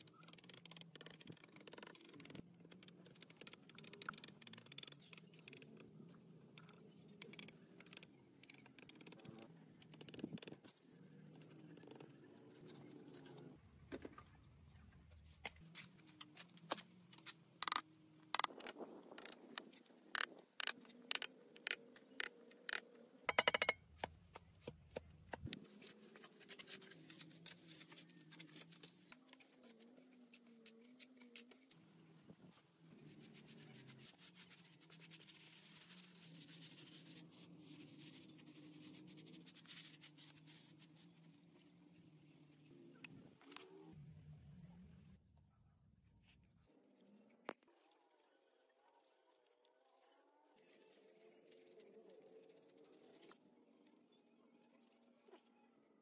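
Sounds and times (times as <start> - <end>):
trowel scraping and tapping mortar: 18.4 - 25.6.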